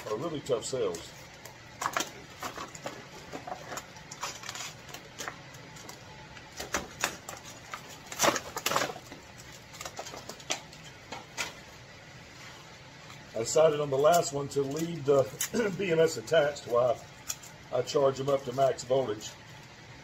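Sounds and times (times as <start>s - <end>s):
plastic wrapping crinkling and tearing: 1.8s - 6.0s.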